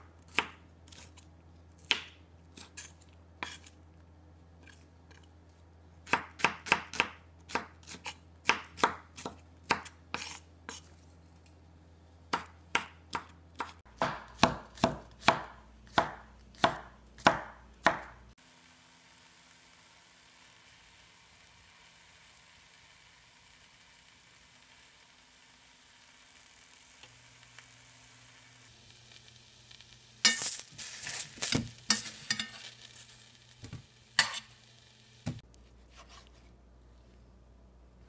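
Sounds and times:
knife chopping on wooden board: 12.3s - 18.2s.

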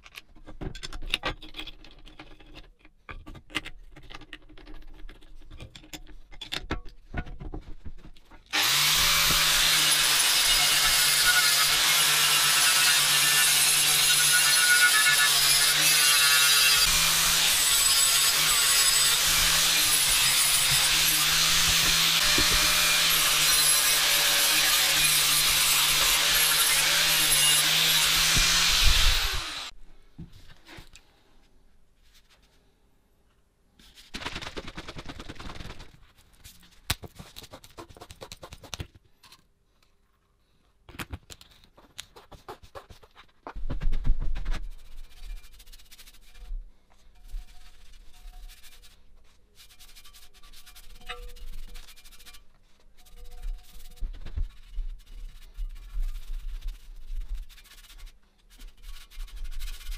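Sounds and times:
angle grinder on steel: 8.5s - 29.7s.

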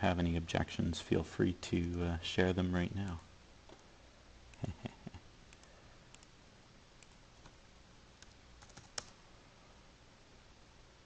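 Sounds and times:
computer mouse and keyboard clicks: 5.5s - 6.3s, 8.2s - 9.2s.

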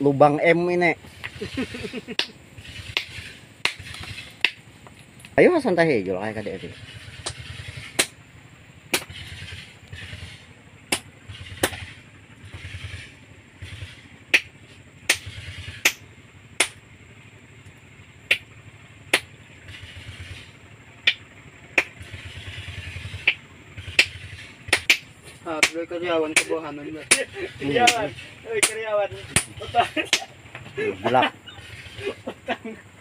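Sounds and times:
low motor buzz: 1.0s - 33.0s
sharp knocks: 2.2s - 4.7s, 7.1s - 8.2s, 8.9s - 10.3s, 10.9s - 12.8s, 15.1s - 16.0s, 16.6s - 16.8s, 23.2s - 30.3s.

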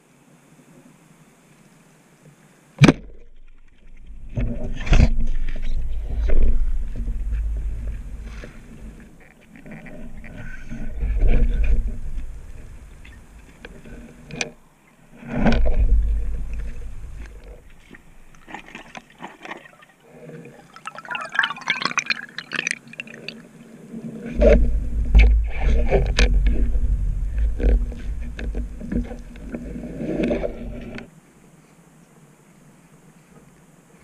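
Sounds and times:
deep underwater rushing surges: 3.9s - 9.2s, 10.0s - 14.3s, 15.2s - 18.4s, 24.3s - 31.0s
bubbly gurgling: 15.2s - 23.7s.

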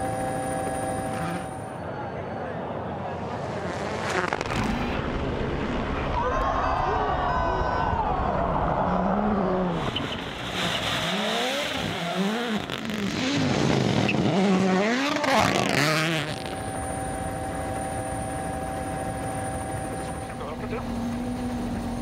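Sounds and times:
car engine revving hard: 9.7s - 16.5s.

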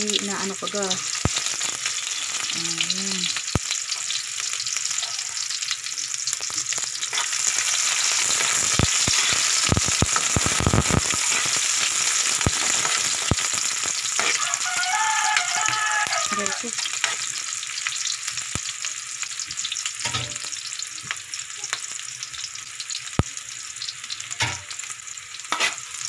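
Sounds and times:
onion sizzling in hot oil: 0.0s - 26.0s
spatula scraping metal wok: 7.0s - 14.6s, 15.4s - 17.3s, 25.5s - 26.0s.

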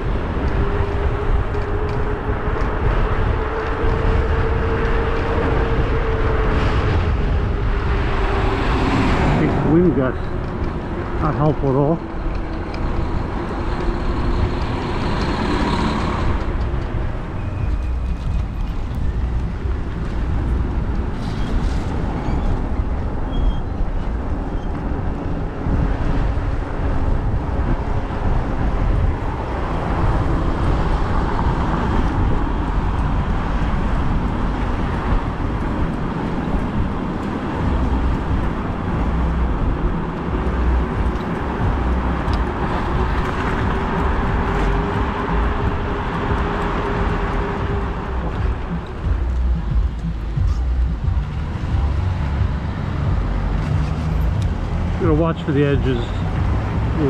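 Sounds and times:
motor traffic: 0.0s - 57.0s
road noise: 0.0s - 57.0s
wind rush: 0.0s - 57.0s.

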